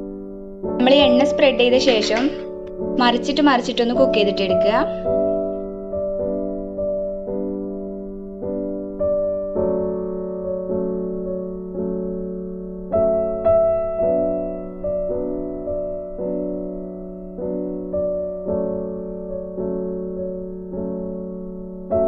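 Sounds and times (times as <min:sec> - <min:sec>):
soft piano chords: 0:00.0 - 0:22.0.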